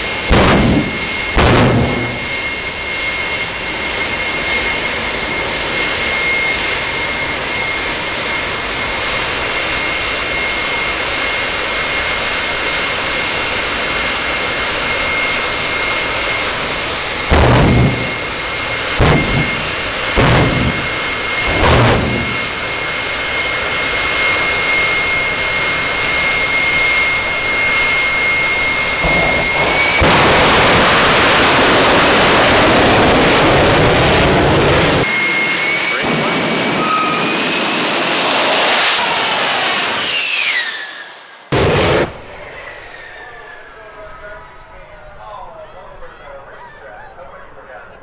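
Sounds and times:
afterburner roar: 0.0 - 43.6
jet turbine whine: 0.0 - 48.0
flame thrower bursts: 0.2 - 2.7, 17.0 - 23.2, 28.6 - 33.4, 40.1 - 42.4.

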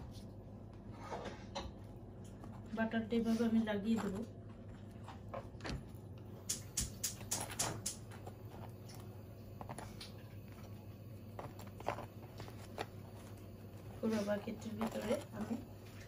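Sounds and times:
knife scraping bread: 7.1 - 16.0.

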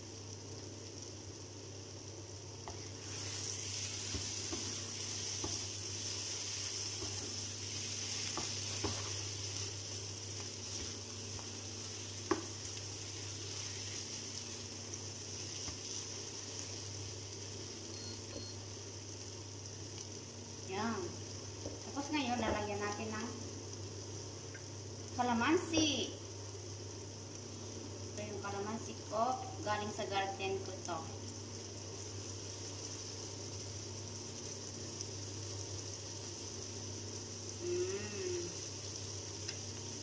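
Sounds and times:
food sizzling in a frying pan: 0.0 - 40.0
utensil tapping and scraping a pan: 4.0 - 5.7, 8.2 - 9.2.

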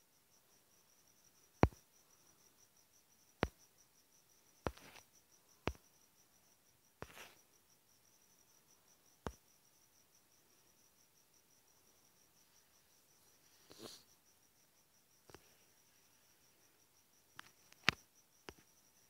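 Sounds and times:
taps on phone screen: 1.6 - 1.8, 4.6 - 5.0, 5.6 - 5.8.

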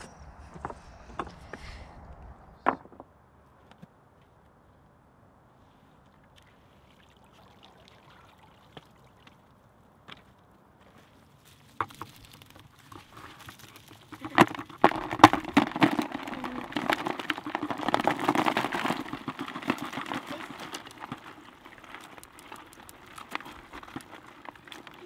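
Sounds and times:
crayfish shells clicking in bucket: 11.8 - 25.0.

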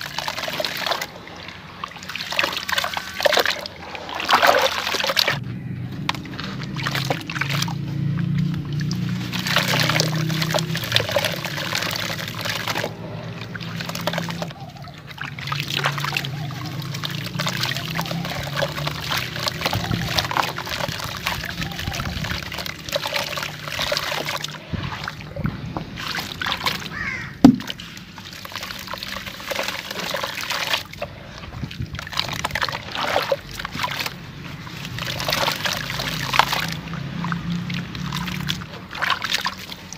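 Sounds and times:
grit pattering into water: 0.0 - 39.9
wet sloshing and squelching: 0.0 - 39.9
sharp knock: 27.4 - 27.7.

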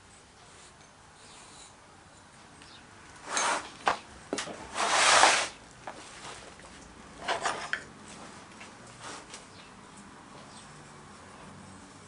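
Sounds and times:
tools scraping: 3.2 - 5.6, 7.2 - 7.9.

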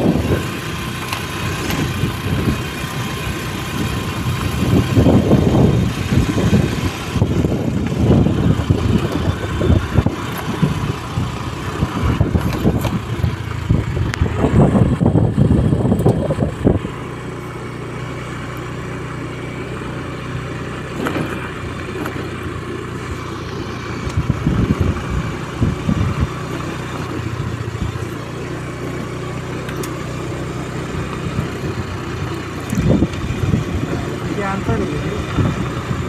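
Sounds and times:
wind noise: 0.0 - 0.6, 3.6 - 17.0, 23.9 - 28.1, 31.3 - 36.0
motorcycle engine running: 0.0 - 36.0.

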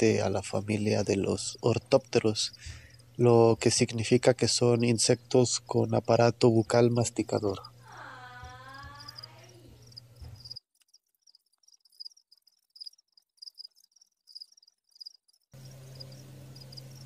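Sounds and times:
crickets chirping: 4.7 - 17.0.

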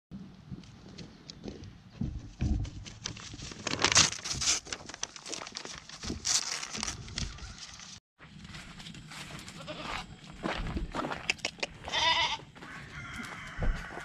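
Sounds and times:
goat chewing paper: 2.9 - 8.0
paper crinkling and tearing: 3.0 - 8.0.

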